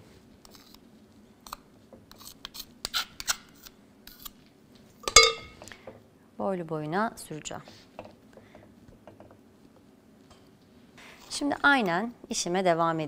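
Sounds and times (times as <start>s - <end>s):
metal clink: 5.1s - 5.6s.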